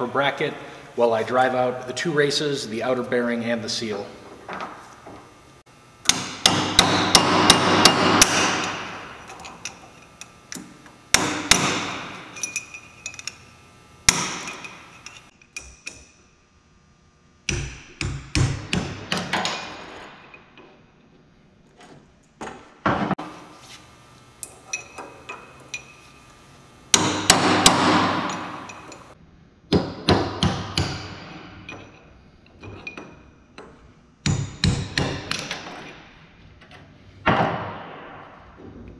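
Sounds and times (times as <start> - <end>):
hammer striking metal: 6.0 - 9.8, 11.1 - 13.3, 14.1 - 16.1, 26.9 - 32.0.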